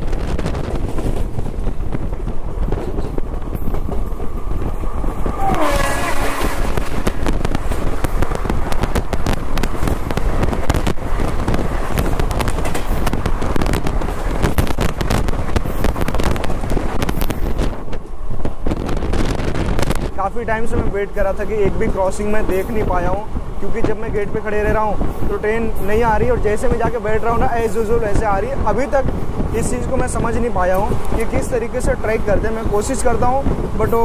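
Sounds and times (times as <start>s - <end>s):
train horn passing: 5.4s - 7.0s.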